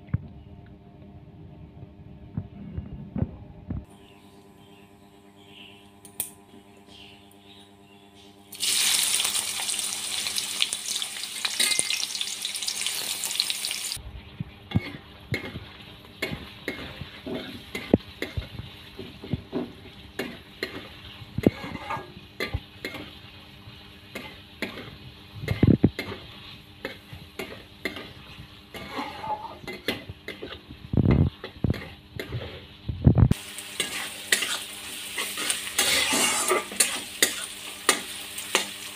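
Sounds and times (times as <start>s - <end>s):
onions sizzling in hot oil: 8.5s - 14.0s, 30.9s - 38.9s
metal spatula scraping pan: 21.4s - 22.1s, 27.9s - 30.6s, 33.8s - 38.7s.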